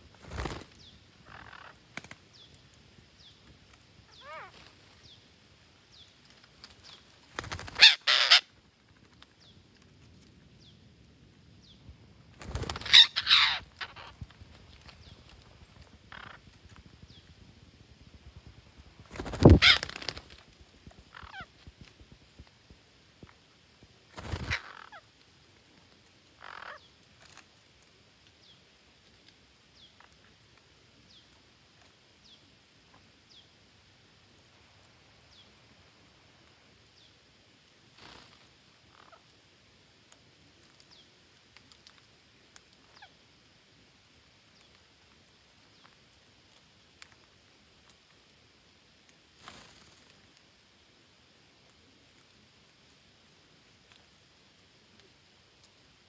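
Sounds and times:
parakeets chirping: 0:01.2 - 0:01.8, 0:04.2 - 0:04.5, 0:07.6 - 0:08.4, 0:12.6 - 0:14.2, 0:16.1 - 0:16.5, 0:19.2 - 0:20.0, 0:21.1 - 0:21.5
parakeet harsh squawk: 0:07.8 - 0:08.5, 0:12.8 - 0:14.1, 0:19.6 - 0:19.9.

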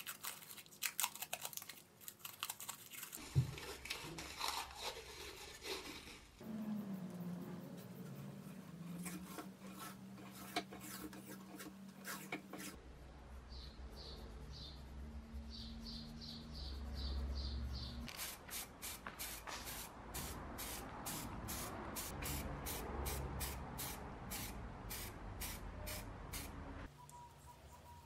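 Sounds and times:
paintbrush brushing on metal: 0:03.2 - 0:13.1
spray paint can hissing: 0:18.1 - 0:26.6.

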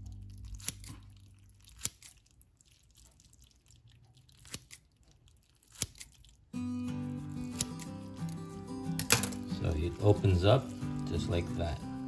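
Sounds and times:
scissors snipping: 0:00.3 - 0:02.3, 0:04.3 - 0:06.4, 0:07.3 - 0:09.5.

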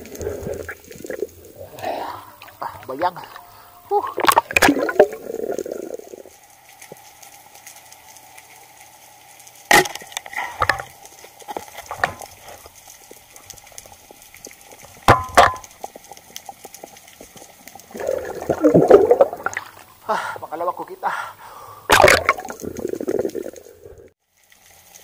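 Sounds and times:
faint steady hum: 0:00.0 - 0:25.0
underwater clicks: 0:09.7 - 0:19.9, 0:21.9 - 0:23.7.

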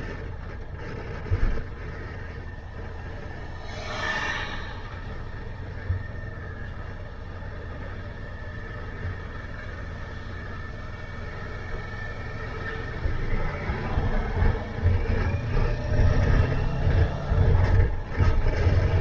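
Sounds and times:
road and wind rumble: 0:00.0 - 0:19.0
lorry passing: 0:02.5 - 0:06.9.

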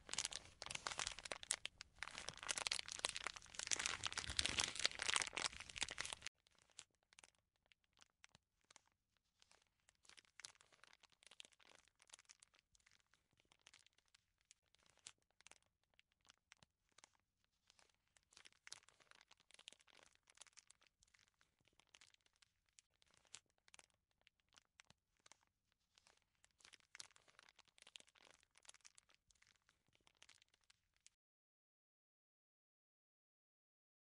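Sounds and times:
plastic bag crinkling: 0:00.0 - 0:07.3, 0:17.7 - 0:23.9, 0:24.5 - 0:30.7.

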